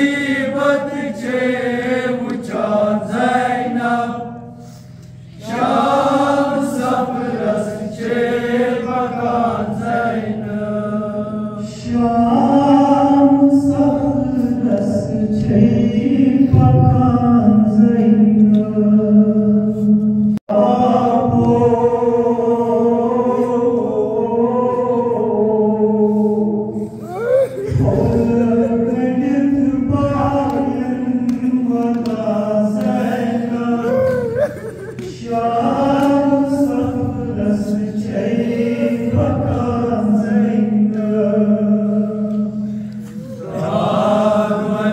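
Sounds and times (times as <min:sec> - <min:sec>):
man chanting a lament: 0:20.5 - 0:42.5
men's voices in chorus: 0:20.5 - 0:44.9.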